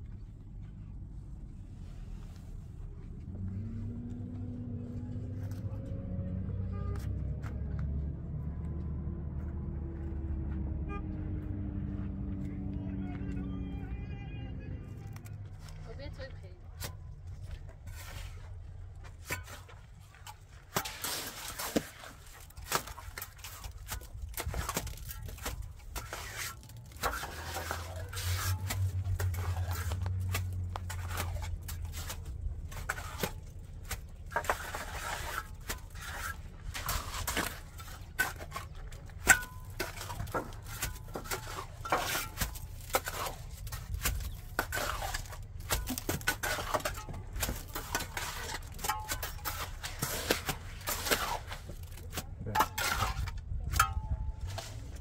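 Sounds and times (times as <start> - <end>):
hand tools clinking and scraping: 15.1 - 55.0.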